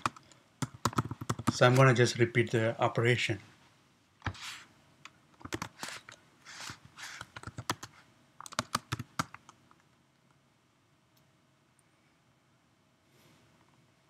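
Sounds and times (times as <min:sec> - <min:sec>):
computer keyboard typing: 0:00.0 - 0:01.8, 0:05.4 - 0:06.0, 0:06.6 - 0:09.6.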